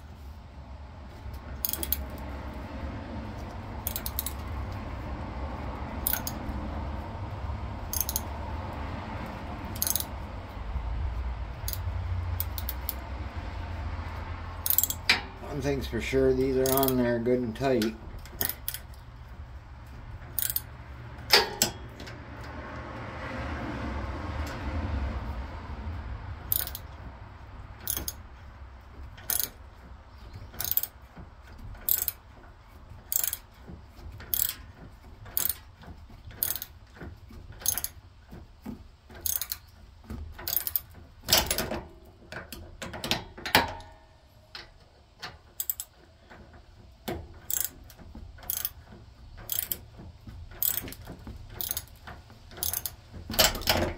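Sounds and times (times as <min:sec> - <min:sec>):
ratchet wrench clicking: 0:01.6 - 0:02.3, 0:03.3 - 0:04.7, 0:05.9 - 0:06.6, 0:07.8 - 0:08.5, 0:09.2 - 0:10.3, 0:11.1 - 0:13.1, 0:14.5 - 0:22.2, 0:26.4 - 0:27.0, 0:27.8 - 0:28.4, 0:29.1 - 0:29.6, 0:30.2 - 0:32.3, 0:33.0 - 0:38.0, 0:39.1 - 0:41.8, 0:45.5 - 0:46.0, 0:47.0 - 0:53.9
metal knocks: 0:20.1 - 0:22.6.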